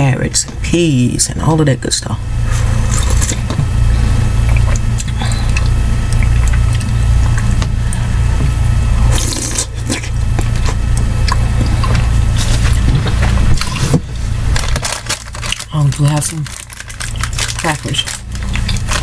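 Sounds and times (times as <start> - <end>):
low hum: 0.0 - 19.0
slurping and chewing soup: 2.4 - 14.0, 18.2 - 19.0.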